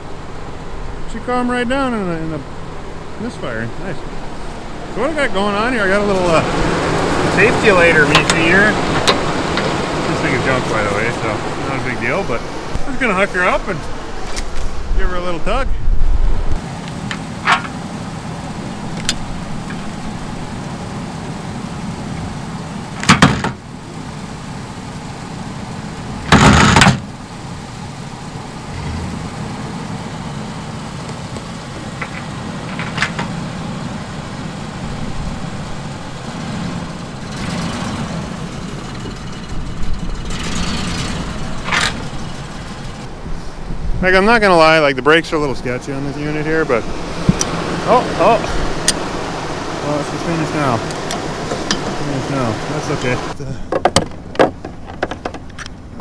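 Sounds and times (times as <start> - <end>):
vehicle engine idling: 0.0 - 56.0
loud bangs: 26.2 - 27.2.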